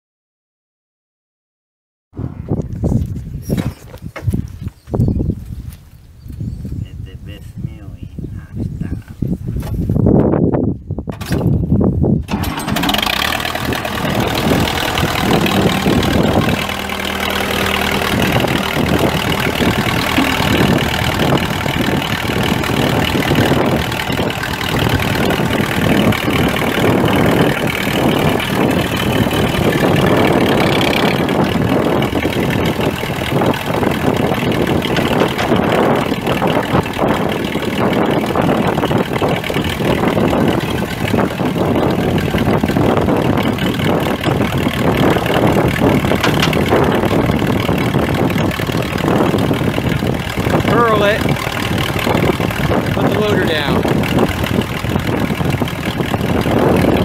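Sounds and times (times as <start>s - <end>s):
diesel tractor engine starting: 12.2s - 57.0s.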